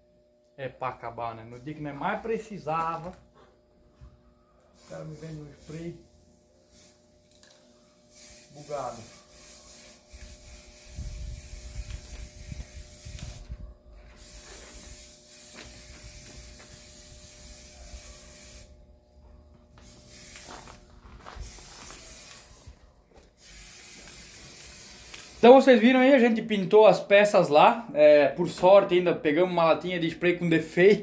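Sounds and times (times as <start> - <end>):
spray paint can hissing: 4.8 - 18.8, 19.8 - 25.8.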